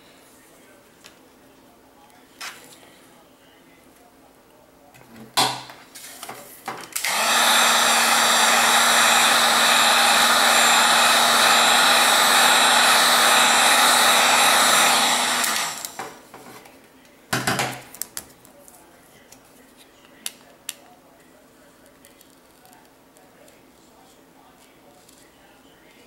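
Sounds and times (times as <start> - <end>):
heat gun blowing: 7.0 - 16.2.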